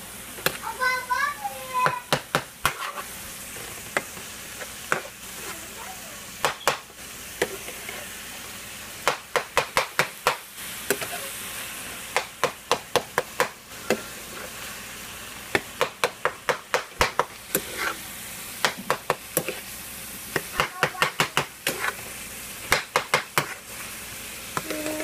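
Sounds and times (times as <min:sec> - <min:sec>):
meat sizzling in a frying pan: 0:00.0 - 0:25.0
utensil scraping a pan: 0:02.6 - 0:05.6, 0:13.7 - 0:14.7, 0:17.0 - 0:23.8.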